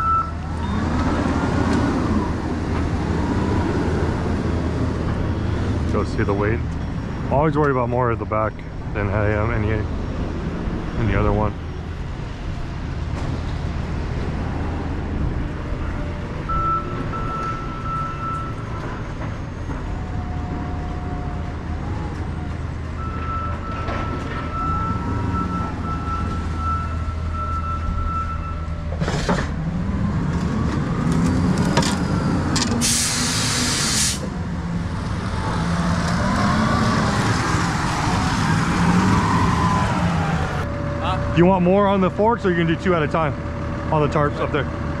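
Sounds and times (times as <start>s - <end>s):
heavy engine running: 0.0s - 45.0s
forklift engine revving: 23.0s - 41.3s
loud air hiss: 32.8s - 34.3s.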